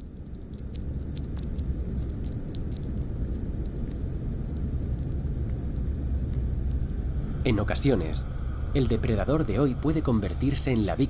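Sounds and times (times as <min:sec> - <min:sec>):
small clicks and ticks: 0:00.0 - 0:07.1
low underwater rumble: 0:00.0 - 0:10.5.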